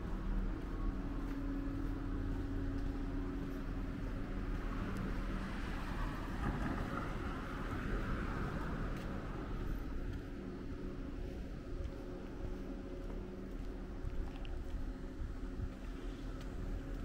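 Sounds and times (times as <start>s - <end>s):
tyre noise of passing vehicle: 0.0s - 12.1s
motor vehicle rumble: 0.0s - 17.0s.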